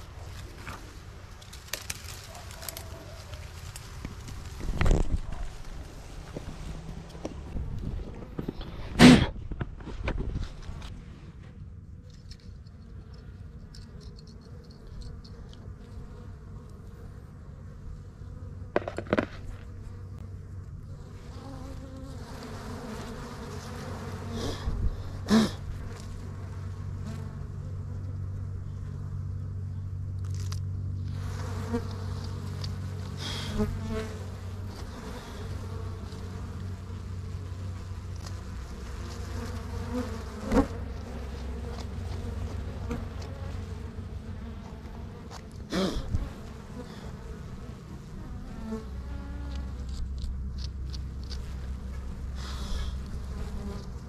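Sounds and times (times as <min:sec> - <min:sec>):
bees buzzing: 0:12.8 - 0:30.0, 0:30.8 - 0:54.0.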